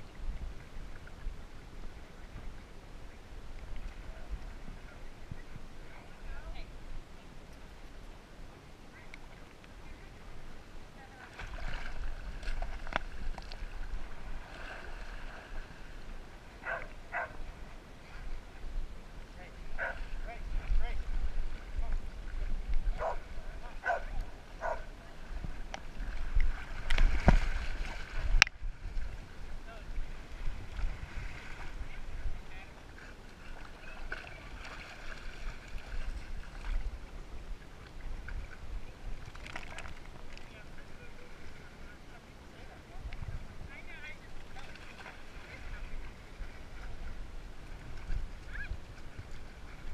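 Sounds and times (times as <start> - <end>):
low rumble of water and wind: 0.0 - 49.9
water sloshing and splashing: 11.0 - 18.6, 19.7 - 41.9, 44.3 - 49.9.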